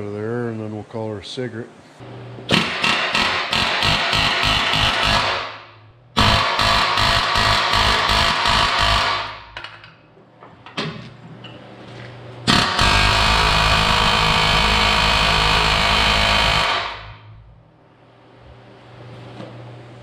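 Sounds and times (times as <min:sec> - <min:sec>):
air hammer on steel: 0:02.5 - 0:09.8, 0:12.5 - 0:17.3
sharp knocks: 0:02.5 - 0:09.8.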